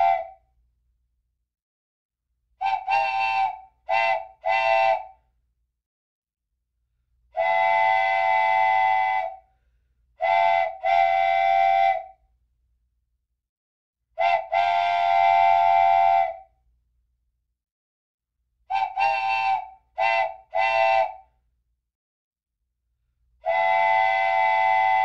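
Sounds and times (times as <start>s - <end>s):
whistle blasts: 0.0s - 0.4s.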